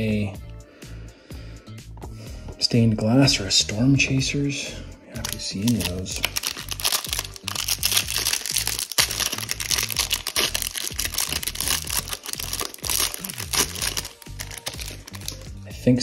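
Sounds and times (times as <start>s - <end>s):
background music with low bass: 0.0s - 16.0s
plastic wrapper crinkling and tearing: 5.2s - 15.5s.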